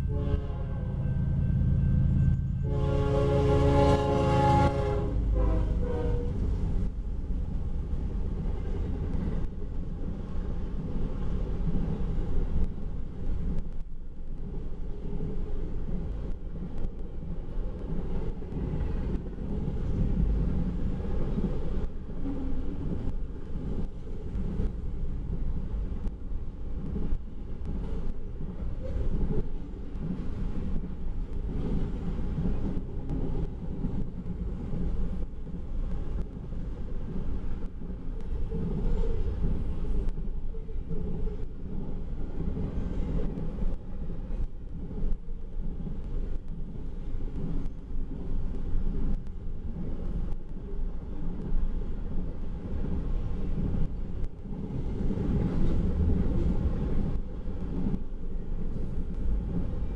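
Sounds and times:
locomotive horn blast: 0.0 - 1.7, 2.3 - 6.4
freight train rumbling by: 0.0 - 59.9.

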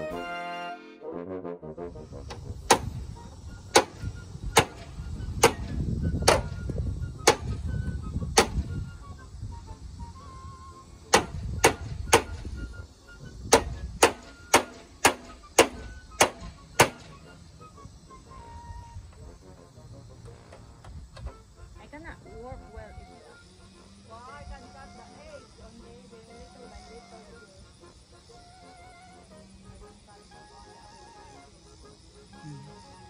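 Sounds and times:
hammer striking gutter edge: 3.7 - 4.0, 4.6 - 4.8, 5.4 - 6.6, 7.2 - 7.6, 11.1 - 12.4, 13.5 - 17.0.

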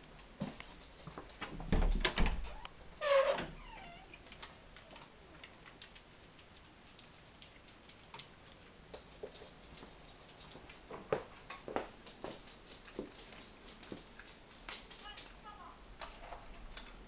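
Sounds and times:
dog claws ticking on tile: 4.3 - 15.4.

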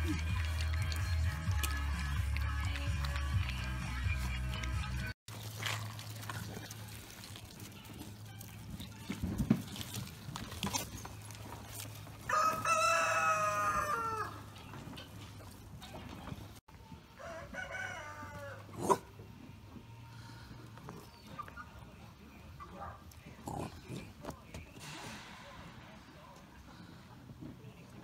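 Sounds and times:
rooster crowing: 12.3 - 14.5, 17.2 - 18.7.

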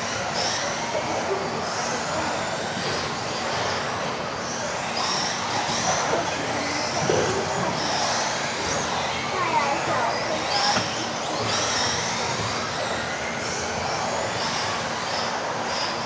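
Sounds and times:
rc car motors whining: 0.0 - 16.0.

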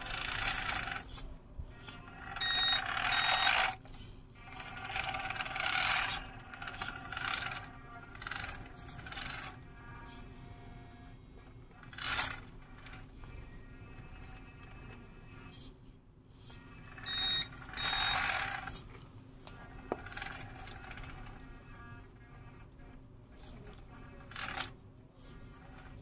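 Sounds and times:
model forklift motor whirring: 0.0 - 15.6, 16.4 - 26.0
short beeps: 2.4 - 3.6, 17.1 - 18.2.

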